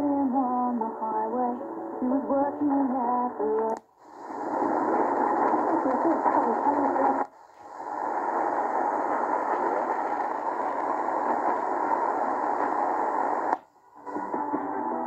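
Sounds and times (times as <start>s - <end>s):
radio station audio: 0.0s - 14.8s
radio static hissing: 3.3s - 15.0s.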